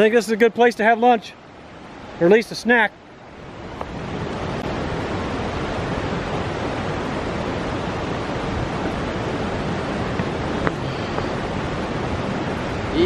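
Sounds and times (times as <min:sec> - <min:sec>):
river rushing over rocks: 0:03.1 - 0:13.0.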